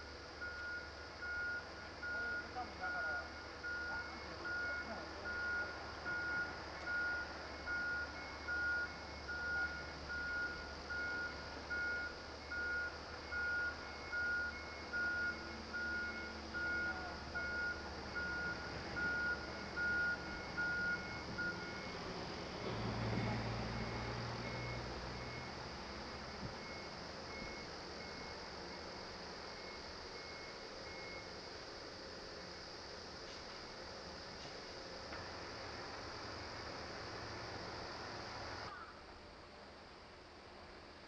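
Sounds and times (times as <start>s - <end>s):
diesel engine: 0.0s - 41.0s
reversing alarm beeping: 0.1s - 22.1s, 23.6s - 25.6s, 26.4s - 31.4s.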